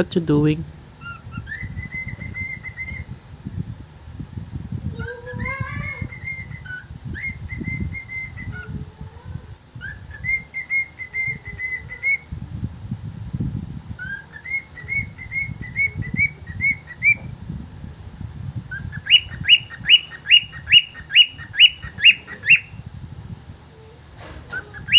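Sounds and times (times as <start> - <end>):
cockatiel whistling: 1.0 - 3.0, 5.4 - 8.7, 9.8 - 12.3, 14.0 - 17.3, 18.7 - 22.8, 24.5 - 24.9.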